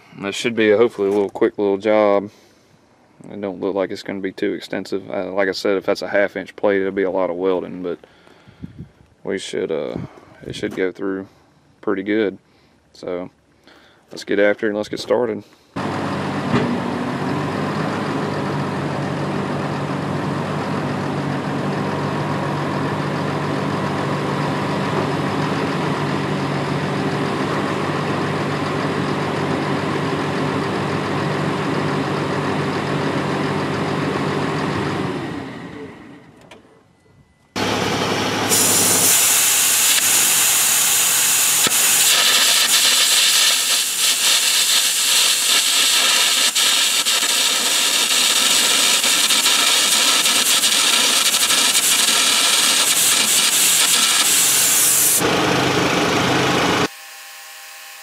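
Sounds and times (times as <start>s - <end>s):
bulldozer diesel engine running: 15.8s - 36.4s, 37.5s - 56.9s
hissing arc and air blast: 38.4s - 55.3s.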